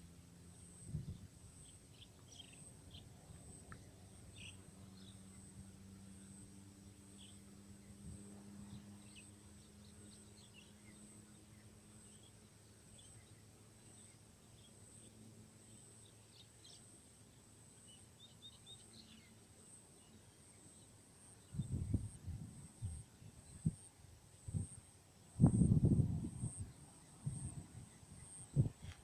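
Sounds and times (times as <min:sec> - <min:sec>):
faint low hum: 0:00.0 - 0:29.0.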